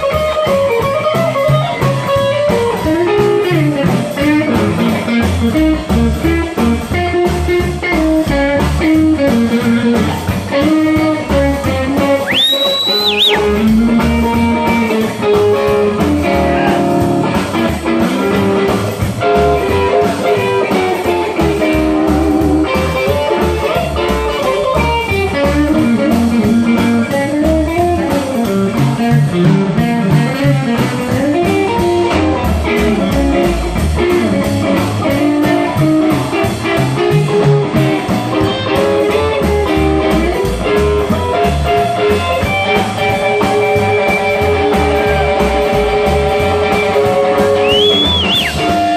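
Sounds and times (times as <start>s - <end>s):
instrumental blues band: 0.0s - 48.9s.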